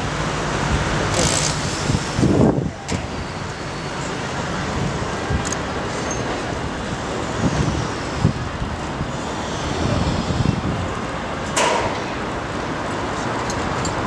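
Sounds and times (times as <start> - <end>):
distant traffic: 0.0 - 14.0
wind on microphone: 0.6 - 3.7, 4.4 - 11.4
sharp knock: 11.6 - 12.1.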